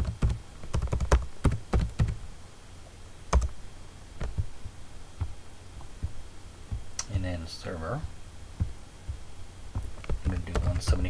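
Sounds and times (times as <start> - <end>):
typing on computer keyboard: 0.0 - 2.2, 3.3 - 3.5, 10.0 - 11.0.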